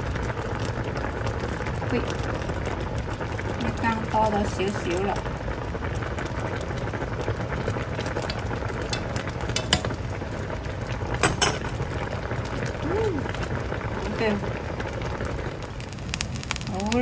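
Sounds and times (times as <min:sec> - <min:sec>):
sauce boiling and bubbling: 0:00.0 - 0:17.0
metal spoon clinking on pot: 0:08.9 - 0:10.0, 0:11.2 - 0:11.8
metal spoon stirring: 0:08.9 - 0:10.0, 0:11.2 - 0:11.8.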